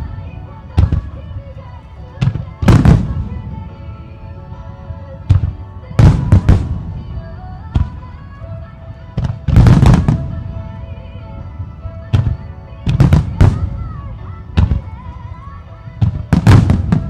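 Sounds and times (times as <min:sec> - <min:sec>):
music: 0:00.0 - 0:17.0
fireworks booming: 0:02.2 - 0:03.6, 0:05.3 - 0:07.1, 0:09.2 - 0:10.4, 0:12.1 - 0:14.0, 0:16.0 - 0:17.0.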